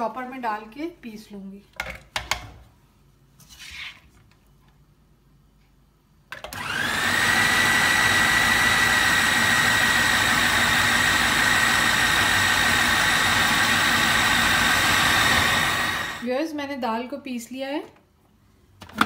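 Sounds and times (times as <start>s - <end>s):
food processor motor whining: 6.4s - 16.3s.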